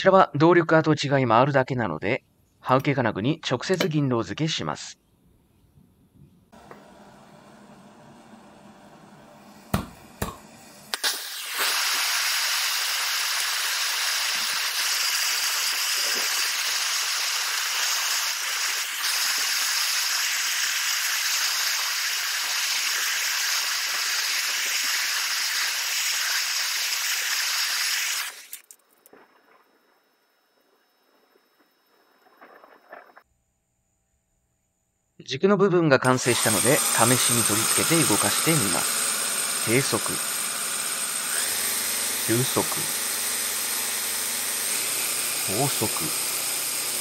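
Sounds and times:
gas torch hissing: 6.6s - 28.8s, 36.1s - 47.0s.

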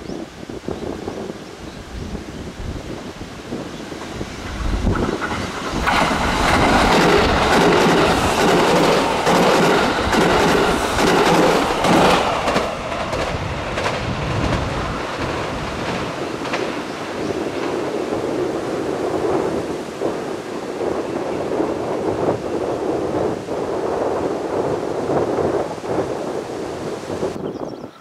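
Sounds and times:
train wheels clattering over rail joints: 4.0s - 18.2s.

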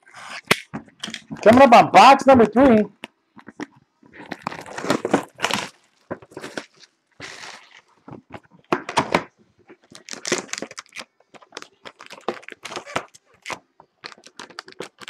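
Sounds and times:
cardboard and wrapping crackling: 3.5s - 15.0s.

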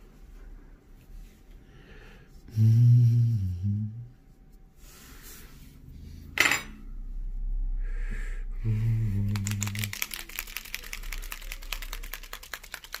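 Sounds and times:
mixing ball rattling in bottle: 9.3s - 13.0s.

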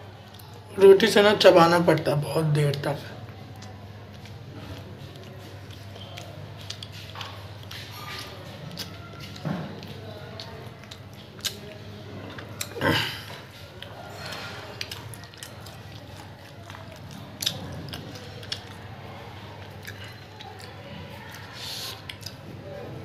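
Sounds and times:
person chewing food: 0.2s - 0.6s, 3.2s - 22.5s
wet mouth smacks: 10.4s - 11.7s.

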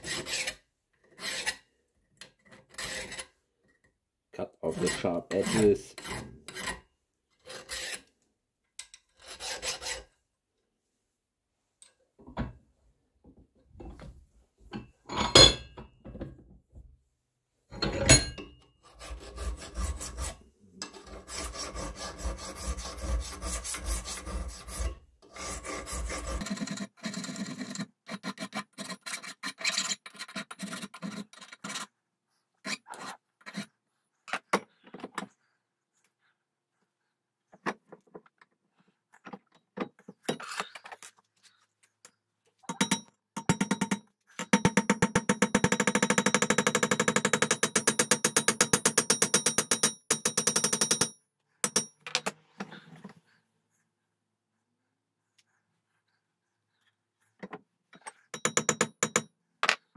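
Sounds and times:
hand file on metal: 0.0s - 3.4s, 4.6s - 8.1s, 9.0s - 10.2s, 18.8s - 31.9s, 32.6s - 33.8s.

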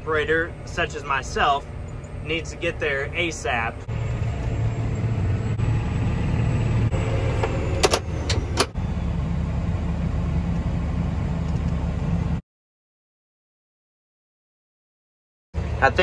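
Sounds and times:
tractor engine running: 0.0s - 12.4s.

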